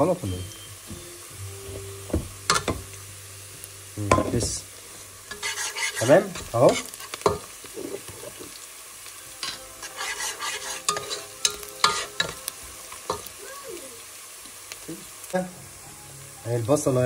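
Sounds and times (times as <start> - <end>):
onions sizzling in oil: 0.0 - 17.0
spatula scraping and knocking pot: 5.3 - 8.4, 9.4 - 11.3.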